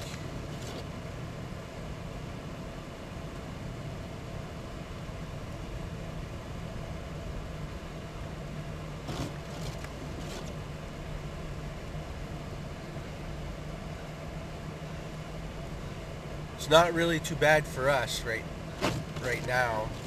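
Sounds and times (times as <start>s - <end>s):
vehicle engine and road hum: 0.0s - 20.0s
windshield wiper swishes: 9.0s - 10.6s, 18.7s - 20.0s.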